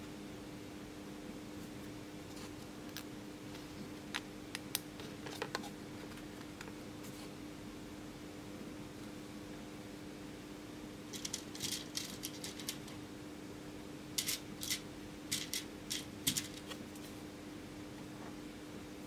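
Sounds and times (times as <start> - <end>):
steady low hum: 0.0 - 19.0
electronic components rattling: 11.1 - 13.0, 14.2 - 16.8.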